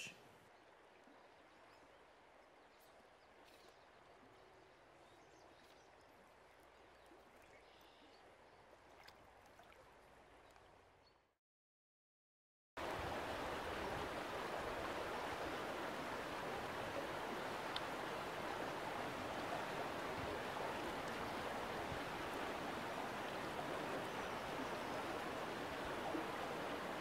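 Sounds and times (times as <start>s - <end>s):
stream rushing over rocks: 12.8s - 27.0s.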